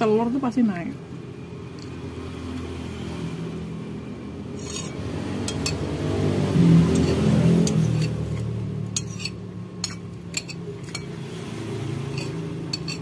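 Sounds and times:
metal spoon clinking on ceramic bowl: 7.0s - 11.2s, 12.1s - 13.0s.

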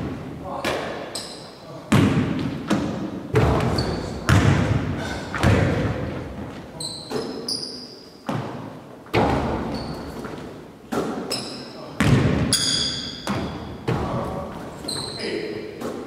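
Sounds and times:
sneaker squeaks: 1.1s - 1.6s, 3.4s - 4.5s, 6.5s - 16.0s
basketball bouncing on hardwood floor: 1.9s - 4.8s, 5.4s - 6.2s, 12.0s - 14.2s.

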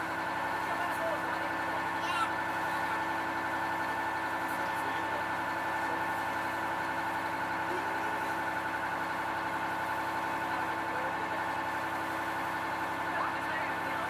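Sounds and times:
boat engine drone: 0.0s - 14.0s.

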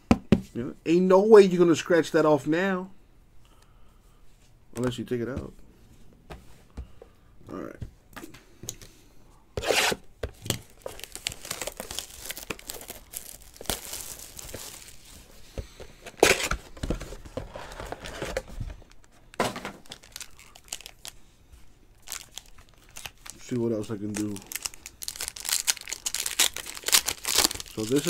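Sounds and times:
foil card packs handled: 9.6s - 21.2s, 22.0s - 28.0s
wrapping tearing and crinkling: 9.7s - 15.4s, 19.8s - 21.2s, 21.9s - 28.0s.

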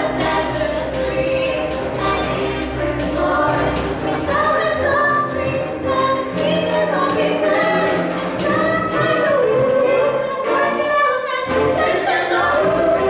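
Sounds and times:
steady drum beat: 0.0s - 9.6s
ensemble singing: 0.0s - 13.0s
instrumental accompaniment: 0.0s - 13.0s.

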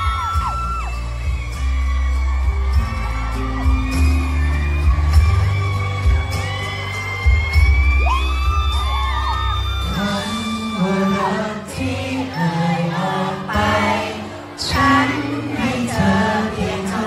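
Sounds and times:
pop backing track with bass: 0.0s - 17.0s
man singing into microphone: 9.6s - 17.0s.

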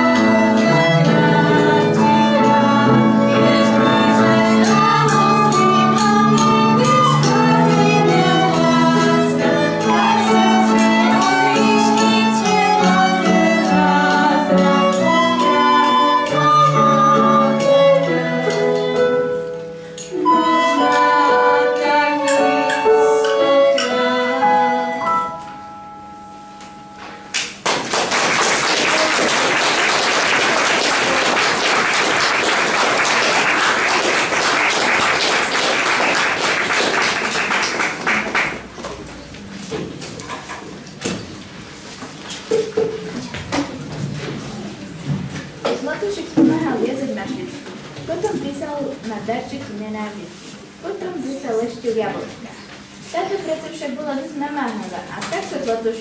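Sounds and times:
girl singing: 0.0s - 19.4s, 20.1s - 25.4s
violin: 0.0s - 19.4s, 20.1s - 25.0s
acoustic guitar: 0.0s - 27.6s
audience applause: 27.6s - 38.7s.

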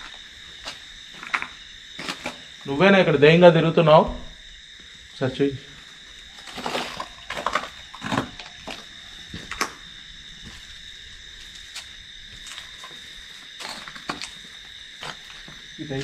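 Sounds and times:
crickets chirring: 0.0s - 16.0s
sharp knocks and crunches: 0.7s - 2.5s, 6.3s - 9.8s, 13.6s - 15.6s.

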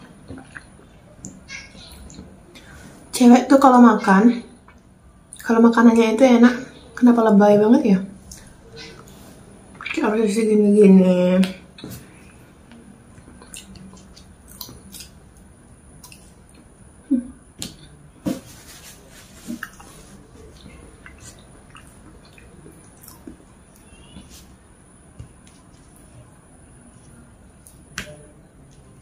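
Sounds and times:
chewing and mouth smacks: 0.2s - 2.7s, 13.1s - 16.7s, 19.5s - 24.3s.

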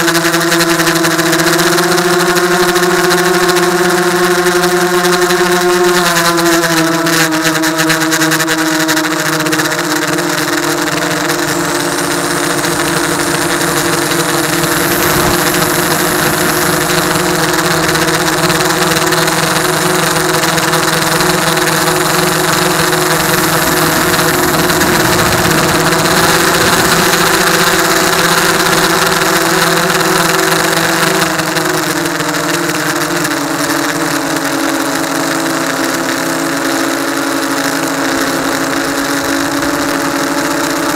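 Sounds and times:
drone motors whining: 9.8s - 31.8s
rushing air hiss: 12.1s - 29.9s.

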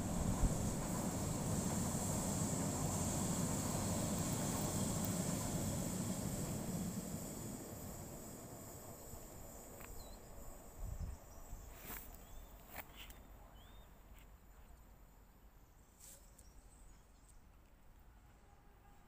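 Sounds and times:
steady high hiss: 0.0s - 12.4s.

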